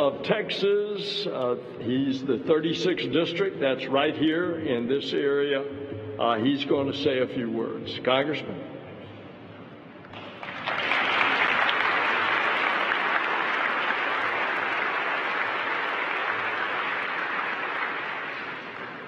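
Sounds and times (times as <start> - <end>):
audience applauding: 10.1 - 19.0.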